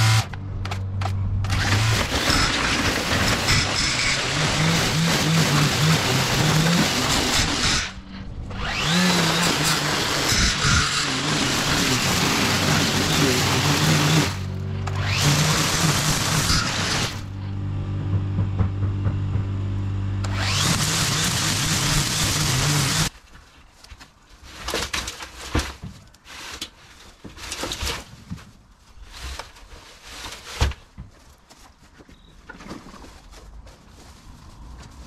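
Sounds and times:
trimmer line cutting grass: 0.0s - 0.3s, 1.5s - 17.4s, 20.3s - 23.1s
string trimmer motor hum: 0.0s - 0.4s, 1.4s - 17.4s, 20.2s - 23.1s
faint rustles and clicks: 23.1s - 35.0s.

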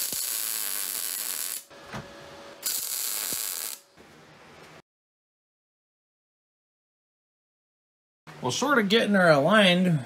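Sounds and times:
welder arc crackling: 0.0s - 1.7s, 2.6s - 3.9s.

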